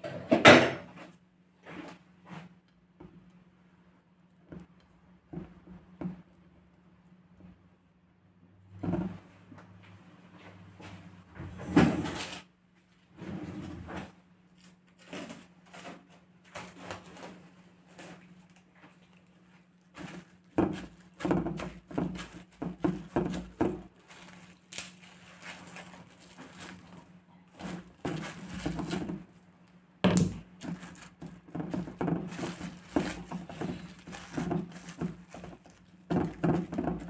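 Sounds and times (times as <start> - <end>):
cling film crinkling: 16.5 - 29.4, 30.4 - 37.0.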